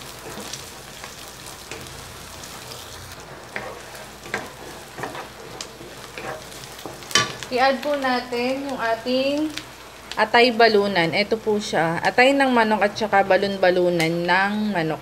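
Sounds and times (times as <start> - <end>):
wooden spatula scraping pan: 0.0 - 7.5
onions sizzling in oil: 0.0 - 15.0.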